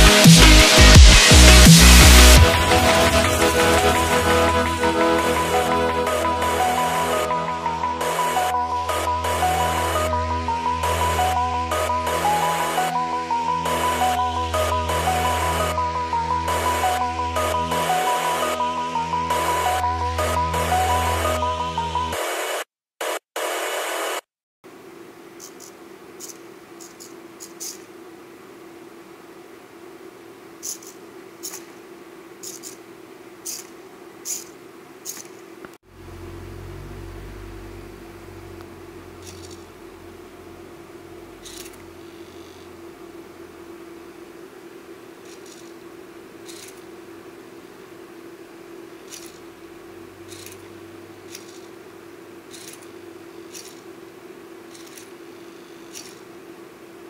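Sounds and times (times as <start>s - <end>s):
steady hum: 0.0s - 57.0s
servo motors whirring: 33.5s - 35.4s, 39.2s - 39.7s, 41.4s - 42.7s, 45.2s - 45.8s, 46.4s - 46.9s, 49.1s - 49.5s, 50.2s - 51.7s, 52.5s - 53.9s, 54.7s - 56.3s.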